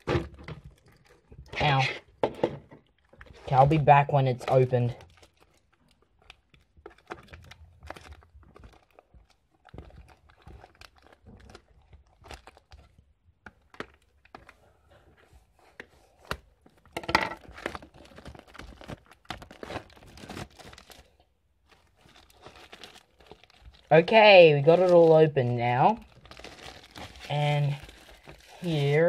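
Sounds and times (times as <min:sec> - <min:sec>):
plastic wrap crinkling and tearing: 0:00.0 - 0:29.0.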